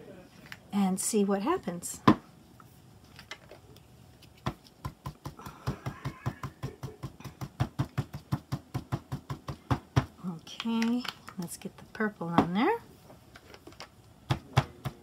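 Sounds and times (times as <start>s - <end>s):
dauber tapping on paper: 4.4s - 10.1s.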